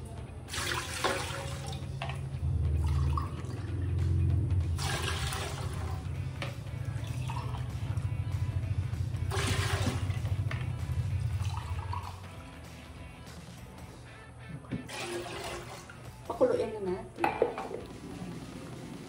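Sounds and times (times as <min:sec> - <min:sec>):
water pouring into a mug: 0:00.5 - 0:02.2, 0:02.8 - 0:03.7, 0:04.8 - 0:08.0, 0:09.3 - 0:10.4, 0:11.3 - 0:12.3, 0:14.9 - 0:16.2
water splashes: 0:00.5 - 0:04.1, 0:04.7 - 0:06.2, 0:09.2 - 0:10.4, 0:14.9 - 0:16.3.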